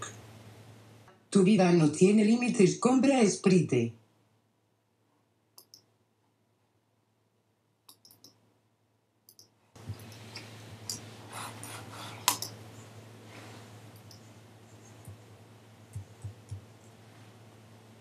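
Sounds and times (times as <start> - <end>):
low hum and hiss: 0.0 - 18.0
sharp clicks: 5.6 - 5.9, 7.9 - 8.4, 9.3 - 10.2.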